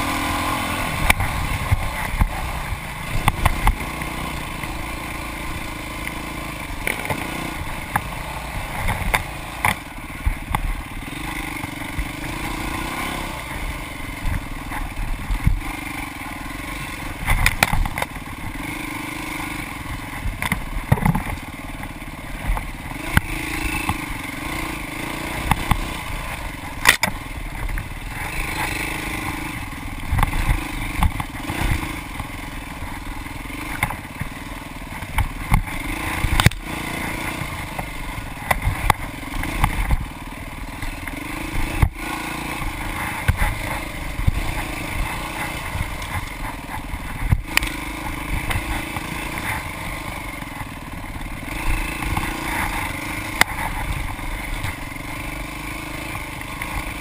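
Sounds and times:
dirt bike engine revving: 0:00.0 - 0:57.0
sharp knocks and rattles: 0:19.8 - 0:24.2.

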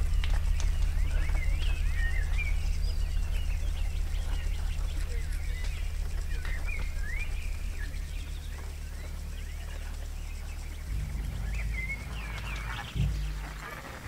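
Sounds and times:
pulsing low hum: 0:00.0 - 0:14.0
thin gliding chirping calls: 0:00.0 - 0:14.0.

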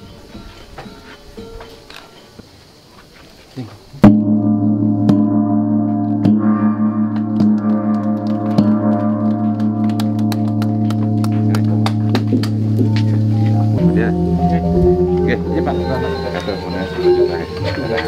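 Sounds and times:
bronze gong struck with mallet: 0:04.0 - 0:18.0.

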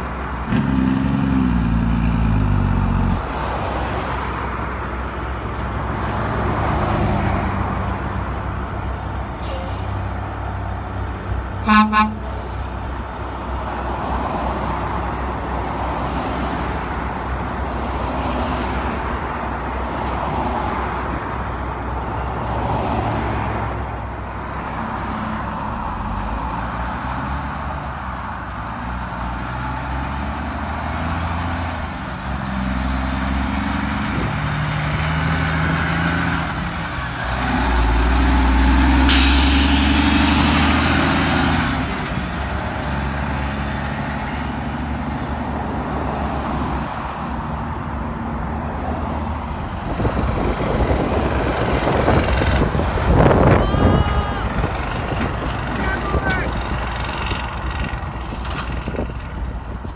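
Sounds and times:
diesel truck engine accelerating: 0:00.0 - 0:59.9
truck horn toots: 0:11.6 - 0:12.4.

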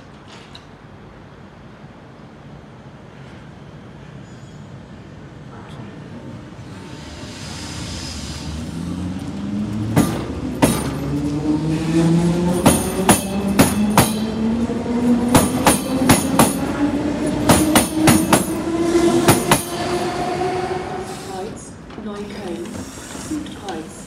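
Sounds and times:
electric train motors whining: 0:06.4 - 0:24.0
train wheels clicking over rail joints: 0:08.2 - 0:11.5, 0:12.5 - 0:14.4, 0:15.2 - 0:16.7, 0:17.3 - 0:19.8.

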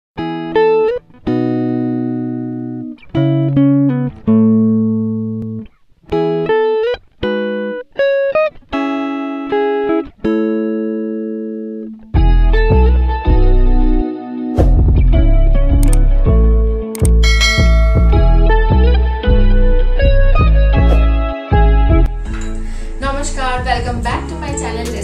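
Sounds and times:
plucked string music: 0:00.2 - 0:25.0
deep bass: 0:12.2 - 0:14.0, 0:14.6 - 0:24.3.

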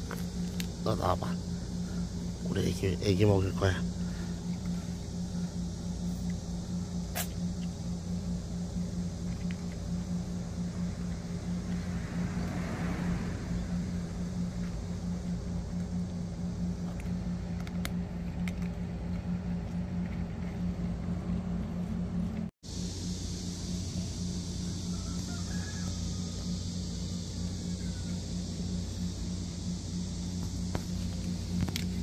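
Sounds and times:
engine humming: 0:00.0 - 0:32.0.

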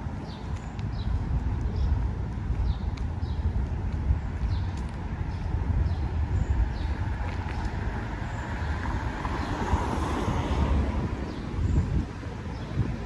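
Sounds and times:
street traffic: 0:00.0 - 0:13.0
wind buffeting microphone: 0:00.0 - 0:13.0
car passing close by: 0:07.5 - 0:11.8.

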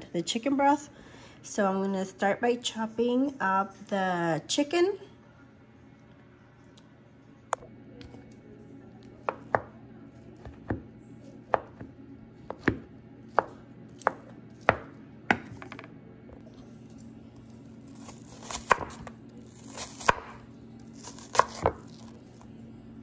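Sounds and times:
knife chopping on wooden board: 0:09.2 - 0:09.7, 0:10.4 - 0:10.9, 0:11.5 - 0:15.8, 0:17.9 - 0:20.4, 0:21.0 - 0:22.1.

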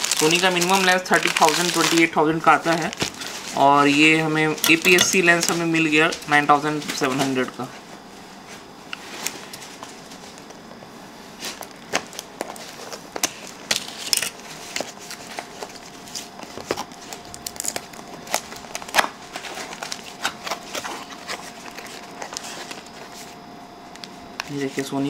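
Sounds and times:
plastic packing crinkling: 0:00.0 - 0:07.5, 0:11.4 - 0:23.4.

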